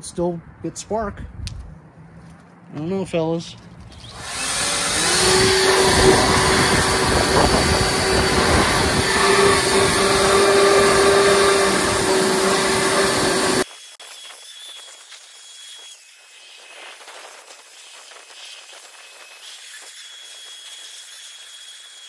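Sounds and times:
leaf blower whining: 3.9 - 13.6.

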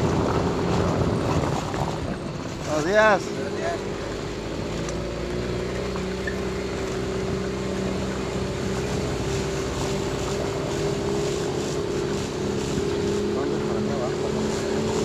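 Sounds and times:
car engine humming: 0.0 - 15.0
road noise: 0.0 - 15.0.

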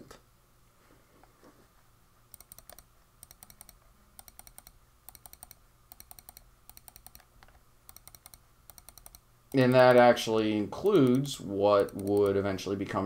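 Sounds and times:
low steady hum: 0.0 - 13.0
computer mouse clicks: 2.3 - 9.9, 11.0 - 12.4.

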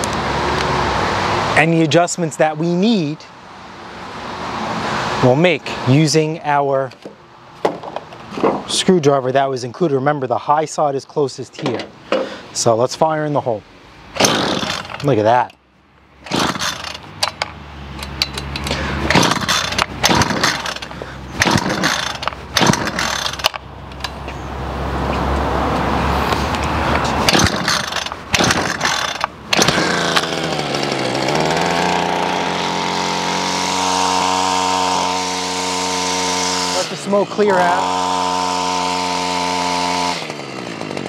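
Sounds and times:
string trimmer engine running: 14.2 - 15.1, 16.2 - 17.1, 18.6 - 23.6, 27.3 - 41.0.

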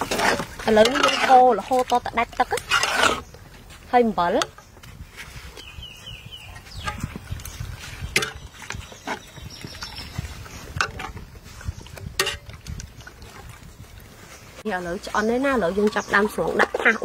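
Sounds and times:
metal ladle scraping a pot: 0.0 - 3.4, 6.6 - 12.8.

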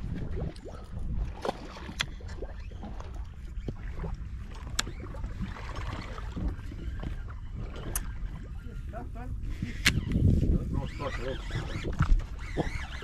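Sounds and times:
water around a boat: 0.0 - 13.0
wind on microphone: 0.0 - 13.0
fishing tackle clicks: 9.8 - 10.2.

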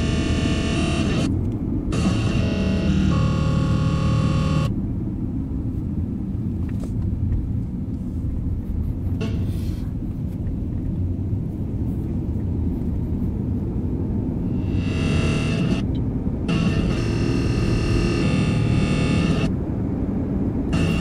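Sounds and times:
radio interference tones: 0.0 - 1.3, 1.9 - 4.7, 9.2 - 9.8, 14.5 - 19.5, 20.7 - 21.0
low steady rumble: 0.0 - 21.0.

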